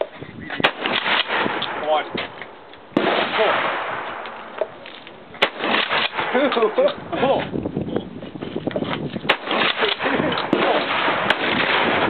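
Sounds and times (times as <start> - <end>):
sharp crack: 0.6 - 7.0, 9.2 - 12.0
shotgun report echoing: 3.0 - 4.8, 5.4 - 7.1, 9.3 - 12.0.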